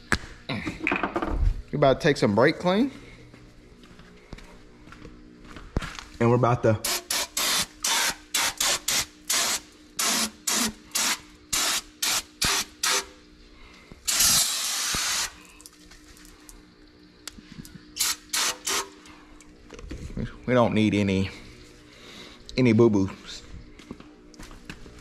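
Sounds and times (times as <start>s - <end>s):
aerosol can spraying: 6.8s - 13.1s, 14.1s - 15.4s, 18.0s - 18.9s.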